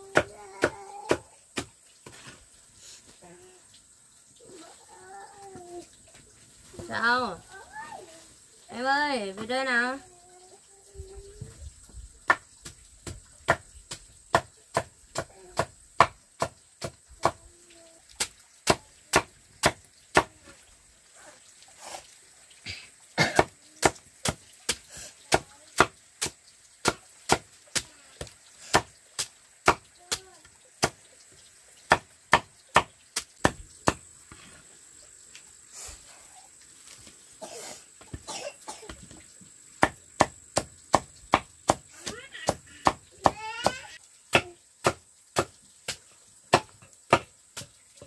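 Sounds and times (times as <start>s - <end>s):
machete chopping on wooden block: 0.1s - 1.7s, 13.0s - 17.4s, 18.2s - 20.3s, 23.2s - 27.9s, 28.7s - 28.9s, 29.6s - 29.8s, 31.9s - 34.0s, 39.8s - 47.7s.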